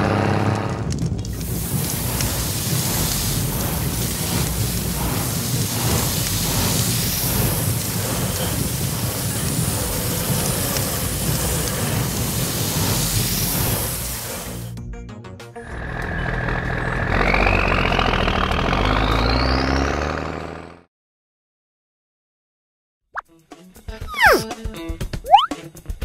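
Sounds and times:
water spraying hiss: 0:01.3 - 0:14.7.

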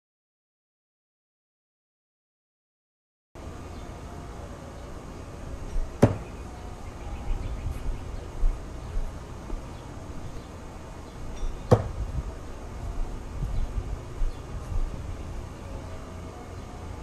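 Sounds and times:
knife striking wooden board: 0:06.0 - 0:06.3, 0:11.7 - 0:11.9.

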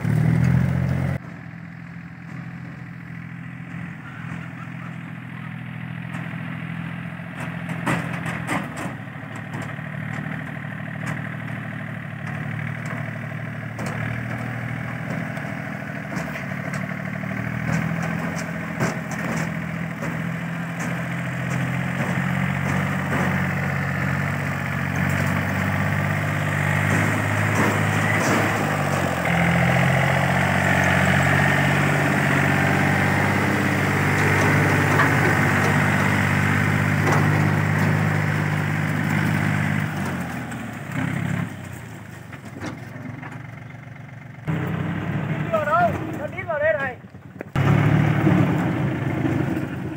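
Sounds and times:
tractor diesel engine running: 0:00.0 - 0:49.9.

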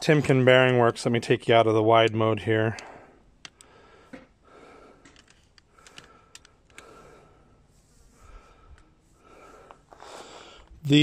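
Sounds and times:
camera handling clicks and rustle: 0:05.0 - 0:06.9.

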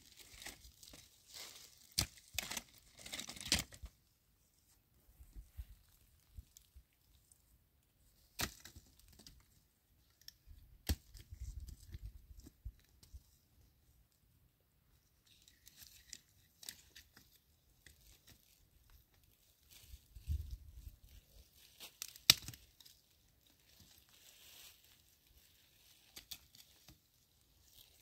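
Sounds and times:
dry leaves rustling: 0:00.0 - 0:03.5.

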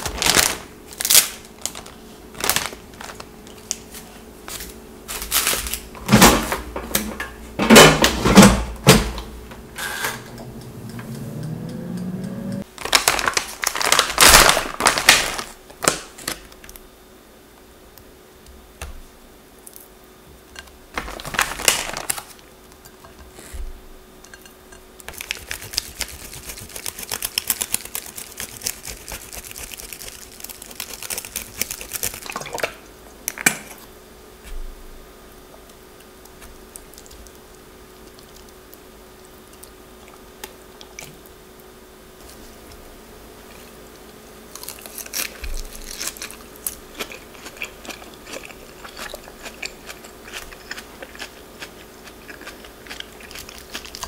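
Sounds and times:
plastic bag crinkling: 0:00.0 - 0:04.0, 0:12.8 - 0:16.2, 0:21.0 - 0:22.4, 0:25.1 - 0:32.6.

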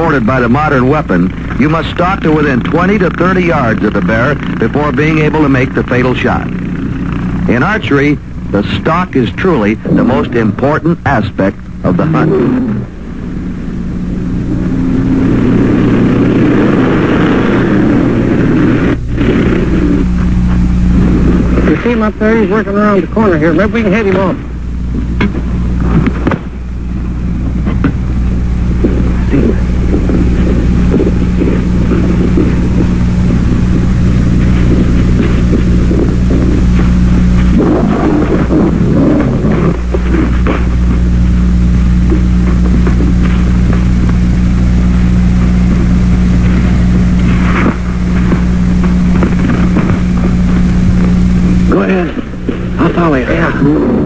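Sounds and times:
engine droning: 0:00.0 - 0:54.0.

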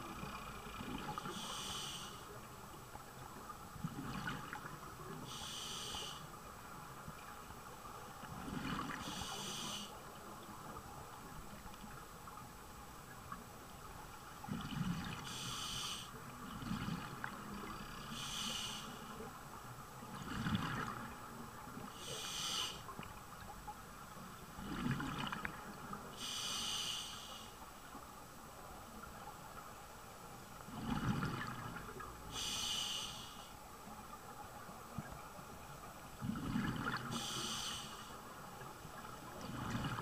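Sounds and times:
muffled regulator inhale: 0:01.3 - 0:02.3, 0:05.3 - 0:06.4, 0:09.0 - 0:10.0, 0:15.2 - 0:16.2, 0:18.1 - 0:19.1, 0:22.0 - 0:22.9, 0:26.2 - 0:27.6, 0:32.3 - 0:33.6, 0:37.1 - 0:38.2
gurgle of exhaled bubbles: 0:20.2 - 0:21.2, 0:24.6 - 0:25.6, 0:30.7 - 0:32.0, 0:36.2 - 0:37.2, 0:39.4 - 0:40.0.

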